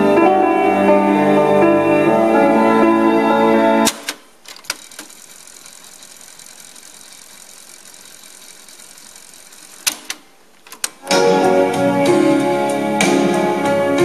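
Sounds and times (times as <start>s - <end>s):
cassette tape fast-winding whir: 4.6s - 10.2s
music playing from tape: 11.0s - 14.0s.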